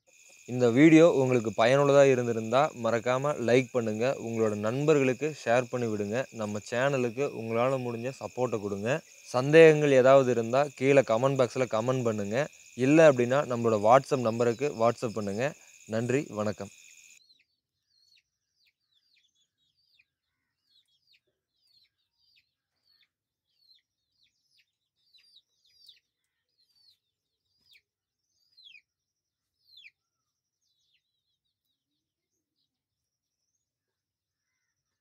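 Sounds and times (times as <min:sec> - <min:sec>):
high insect trill: 0:00.0 - 0:17.2.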